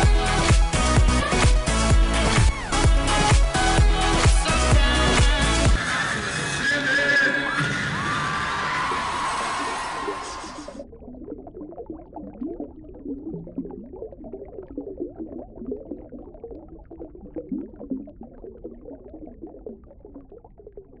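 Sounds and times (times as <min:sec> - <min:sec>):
underwater bubbles gurgling: 0:09.5 - 0:21.0.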